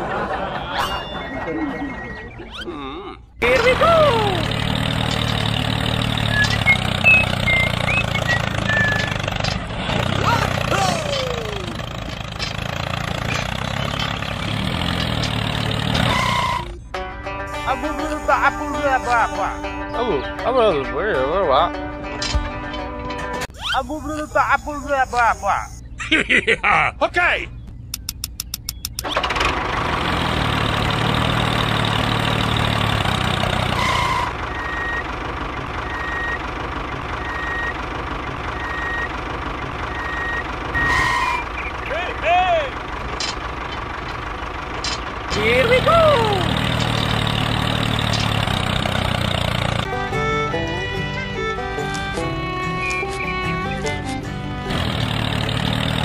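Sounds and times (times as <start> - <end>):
heavy vehicle engine rumbling: 0.0 - 56.0
reversing alarm beeping: 0.4 - 2.6, 33.8 - 35.1, 35.8 - 36.4, 37.2 - 37.8, 38.6 - 39.1, 39.9 - 41.8
motor running with low rumble: 43.2 - 56.0.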